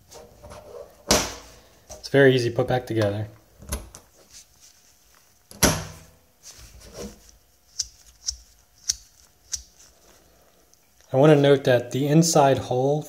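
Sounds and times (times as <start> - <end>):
soft handling noise: 3.9 - 5.5, 6.4 - 11.2.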